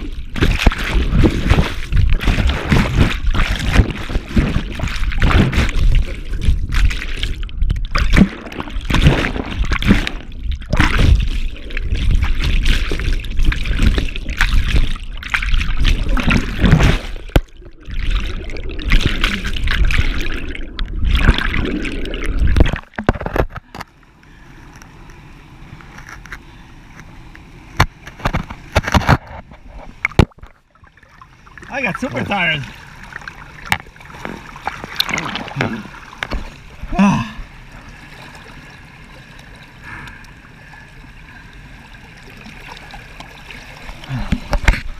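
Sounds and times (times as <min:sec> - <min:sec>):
sharp splashes: 0:00.0 - 0:23.0
turbulent water churning and splashing: 0:00.0 - 0:23.9, 0:27.8 - 0:44.9.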